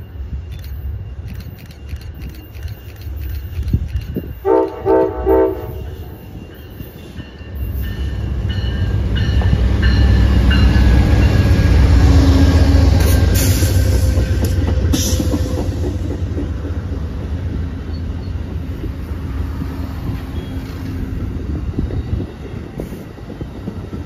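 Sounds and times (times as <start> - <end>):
train rumbling past: 0.0 - 24.0
locomotive horn blasts: 4.4 - 6.2.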